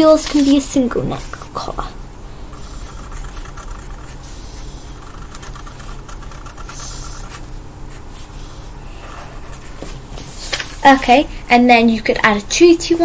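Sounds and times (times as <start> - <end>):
marker pens scratching on paper: 0.0 - 1.9, 2.5 - 10.7
low background hum: 0.0 - 13.0.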